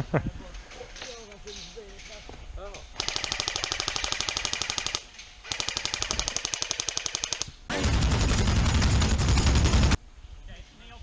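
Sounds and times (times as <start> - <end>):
airsoft gun rapid clicks: 3.0 - 7.6.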